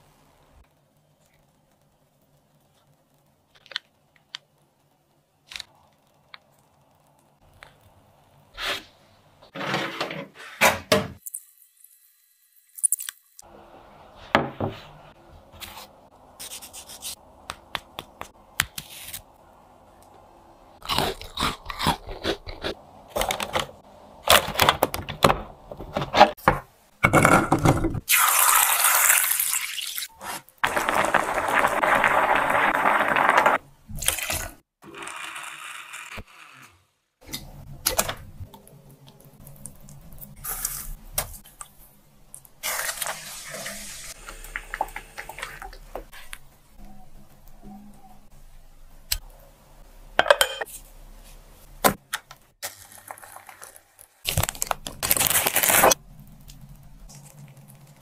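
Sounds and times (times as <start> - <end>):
kitchen handling clicks and knocks: 24.5 - 28.0
water pouring into metal pot: 28.1 - 30.0.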